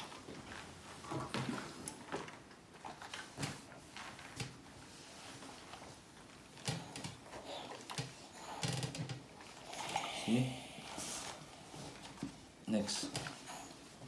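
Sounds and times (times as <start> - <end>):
fabric rustling: 0.0 - 14.0.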